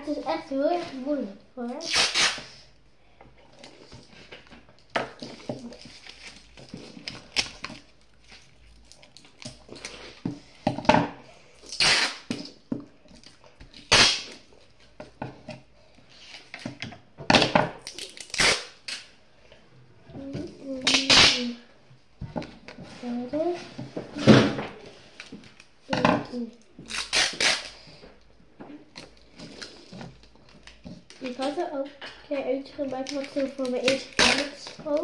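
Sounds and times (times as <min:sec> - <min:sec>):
paper rustling and crinkling: 0:32.8 - 0:35.0.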